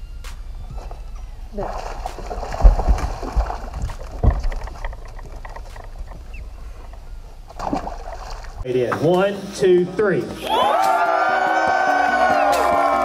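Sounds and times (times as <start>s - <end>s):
low rumble: 0.0s - 8.6s
fish splashing into water: 1.6s - 4.8s, 7.5s - 8.6s
handling noise on deck: 1.8s - 8.6s.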